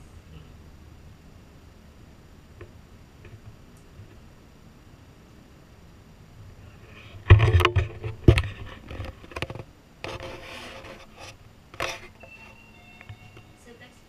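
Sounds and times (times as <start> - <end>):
camera rubbing and scraping: 6.9 - 12.2.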